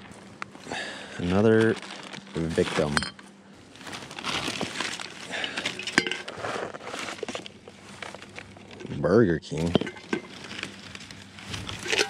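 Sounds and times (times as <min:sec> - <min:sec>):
trash crinkling: 0:00.0 - 0:12.0
cans and bottles clinking: 0:04.6 - 0:06.4, 0:09.6 - 0:11.0, 0:11.6 - 0:12.0.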